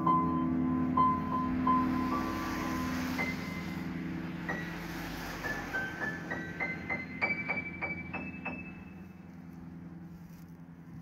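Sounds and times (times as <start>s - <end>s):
piano music: 0.0s - 11.0s.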